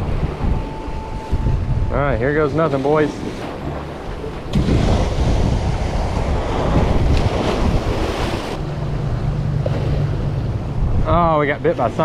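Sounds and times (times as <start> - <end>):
wind rumbling on microphone: 0.0 - 12.0
surf breaking over rocks: 2.3 - 8.7.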